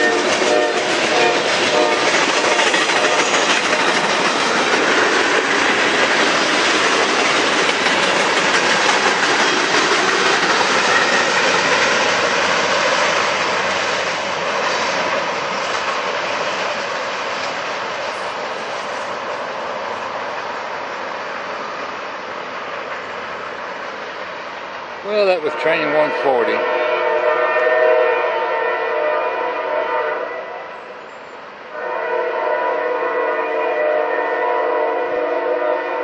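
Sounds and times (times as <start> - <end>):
distant train horn: 0.0 - 3.4, 25.1 - 31.0, 31.7 - 36.0
freight train wheels clattering: 0.0 - 26.8.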